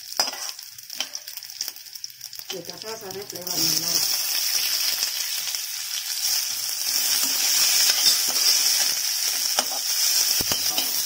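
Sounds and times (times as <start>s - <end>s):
onions sizzling in hot oil: 0.0s - 11.0s
metal spoon scraping pan: 0.2s - 1.2s, 6.8s - 11.0s.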